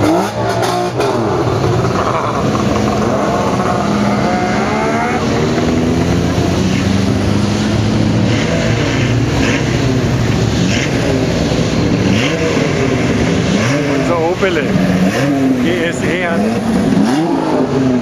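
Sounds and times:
car engines revving: 0.0s - 18.0s.

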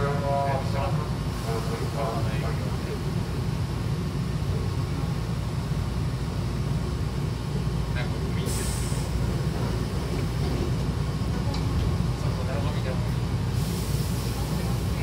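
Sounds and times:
low hum of train: 0.0s - 15.0s
air hiss of sliding doors: 8.4s - 10.9s, 13.4s - 15.0s.

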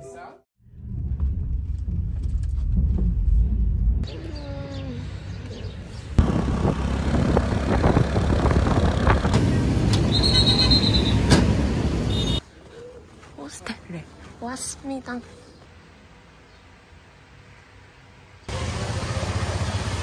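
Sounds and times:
small motorbike engine running: 6.2s - 9.4s
wind noise on microphone: 6.2s - 9.4s.

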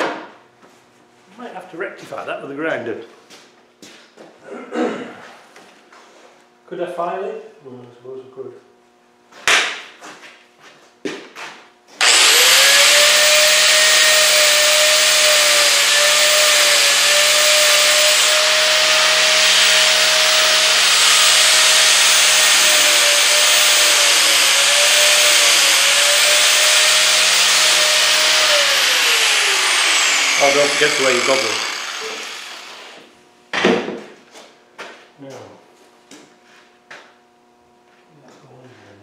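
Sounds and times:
angle grinder grinding metal: 12.0s - 33.1s.

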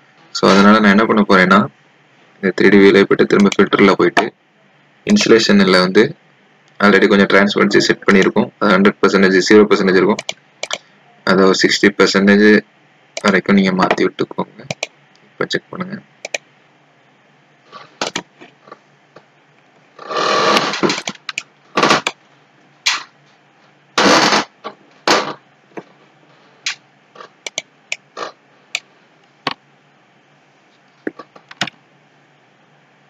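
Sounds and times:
computer mouse clicks: 10.2s - 10.8s, 14.6s - 14.9s, 16.2s - 16.4s, 21.0s - 22.2s, 27.4s - 28.1s, 31.0s - 31.8s.

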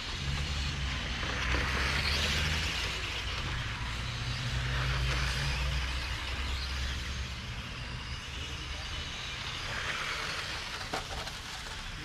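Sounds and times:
radio-controlled cars passing: 0.0s - 12.0s.

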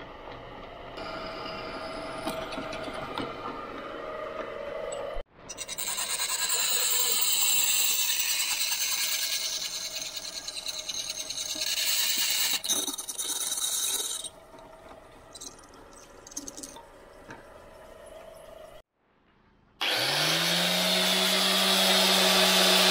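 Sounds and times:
drill bit grinding metal: 5.5s - 14.4s, 19.8s - 22.9s.

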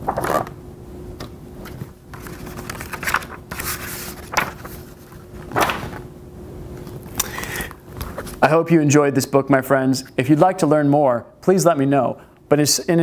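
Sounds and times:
book pages turning: 0.0s - 0.6s, 1.2s - 6.0s
faint steady hum: 0.0s - 13.0s.

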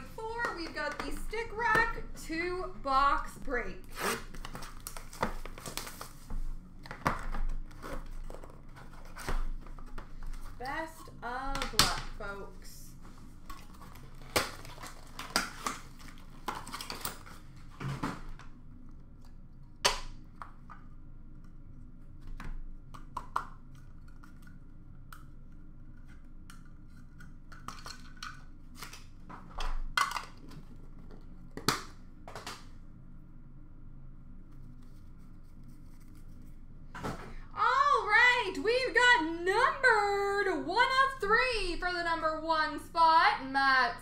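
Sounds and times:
packaging clicks and rustles: 4.2s - 10.6s, 13.4s - 18.5s.

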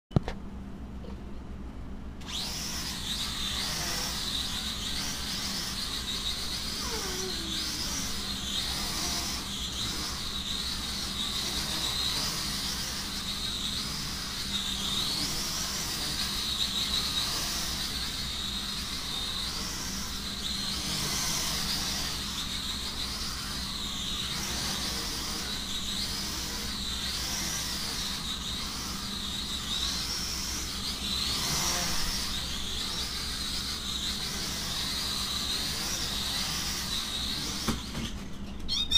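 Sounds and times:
low steady hum: 0.1s - 16.4s
toy drone propellers buzzing: 2.2s - 38.9s.

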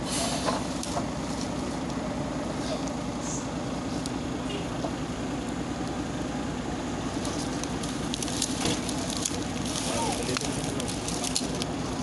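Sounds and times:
heavy machine diesel engines: 0.0s - 12.0s
crackles and clicks: 7.2s - 12.0s.

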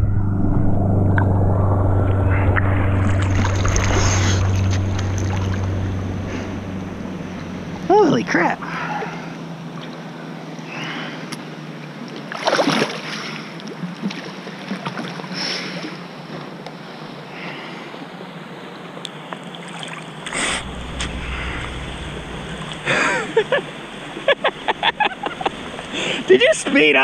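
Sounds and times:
low rumble: 0.0s - 10.1s, 20.2s - 26.3s
water lapping and sloshing: 2.6s - 27.0s.

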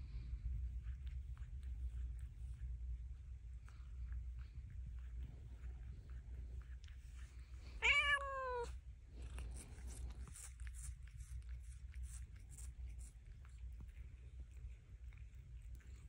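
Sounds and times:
cat licking and nibbling: 0.0s - 16.0s
steady low hum: 0.0s - 16.0s
cat meowing: 7.8s - 8.7s.

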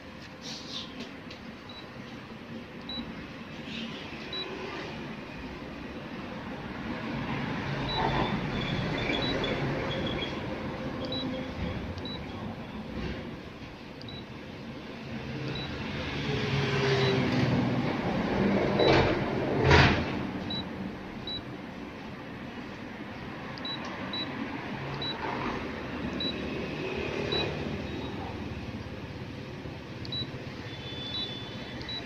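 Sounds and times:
touch-screen key beeps: 2.8s - 3.1s, 4.3s - 4.6s, 7.8s - 10.4s, 11.0s - 12.3s, 14.0s - 14.3s, 15.5s - 15.8s, 18.8s - 19.0s, 20.5s - 21.5s, 23.6s - 24.3s, 25.0s - 25.2s, 26.2s - 26.4s, 27.3s - 28.4s, 30.1s - 32.0s.

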